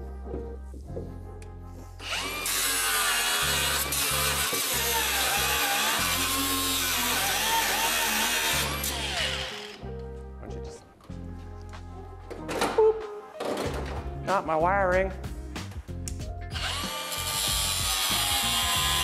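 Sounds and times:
angle grinder grinding steel: 0:02.0 - 0:09.8, 0:16.5 - 0:19.0.

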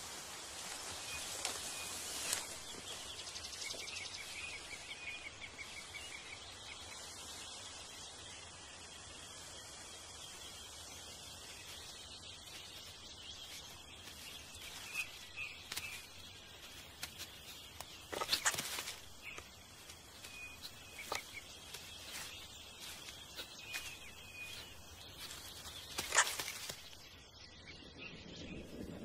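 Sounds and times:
small crackles: 0:00.0 - 0:06.2, 0:10.2 - 0:27.2
bird chirps: 0:10.4 - 0:29.0
stems snapping: 0:13.6 - 0:27.0.

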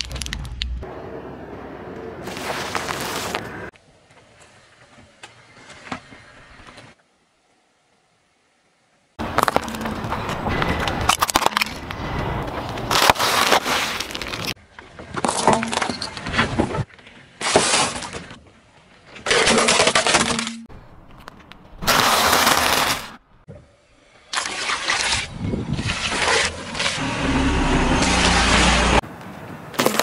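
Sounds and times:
tyre crushing objects crunching: 0:09.2 - 0:14.6, 0:21.8 - 0:23.2.

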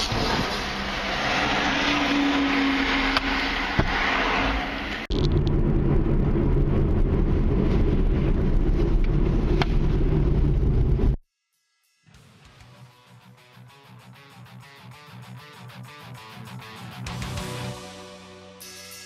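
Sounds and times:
car road noise on highway: 0:00.0 - 0:11.2
deep steady road rumble: 0:00.0 - 0:11.2.

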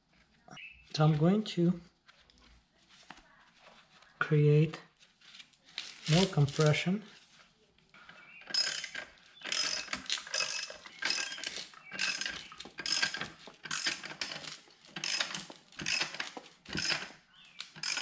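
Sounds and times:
ratchet wrench clicking: 0:08.5 - 0:18.0.

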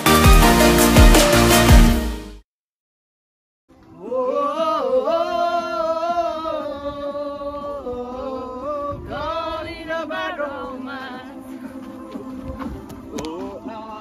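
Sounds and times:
song with sung vocal: 0:03.9 - 0:14.0.

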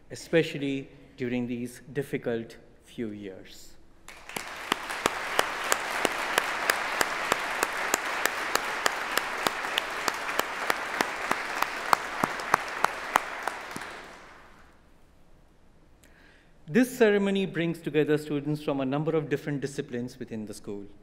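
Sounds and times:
audience applauding: 0:04.1 - 0:14.8
close hands clapping: 0:04.1 - 0:14.8.

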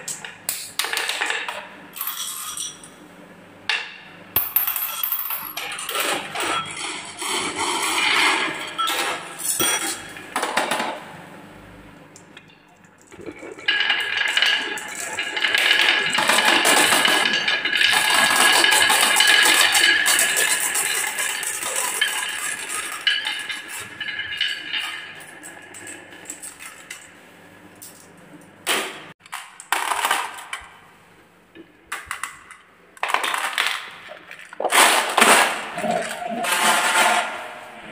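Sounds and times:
marbles clattering into plastic truck: 0:29.3 - 0:30.6.

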